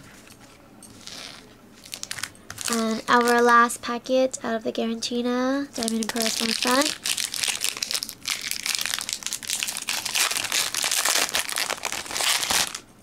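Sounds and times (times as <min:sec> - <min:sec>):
foil wrapper crackling: 0:01.0 - 0:03.5, 0:05.8 - 0:13.0.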